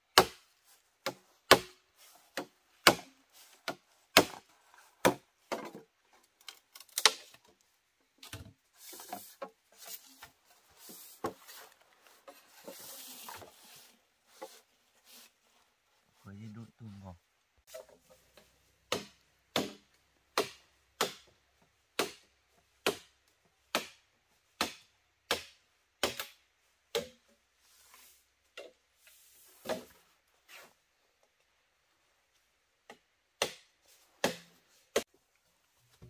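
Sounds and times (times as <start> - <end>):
blade chopping into wood: 0.2 - 0.4, 2.4 - 4.4, 18.9 - 19.8, 20.4 - 21.3, 23.7 - 24.0, 33.4 - 35.0.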